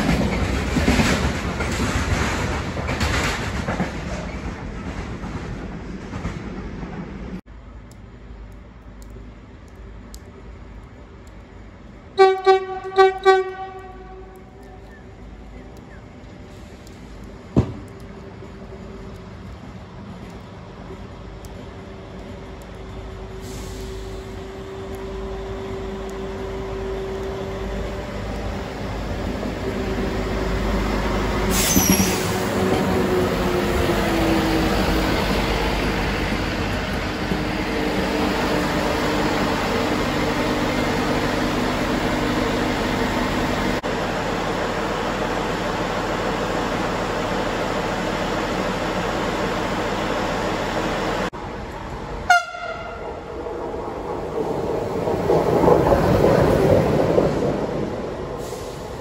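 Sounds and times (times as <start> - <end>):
rail vehicle passing: 0.0 - 59.0
high squeal: 31.5 - 32.6.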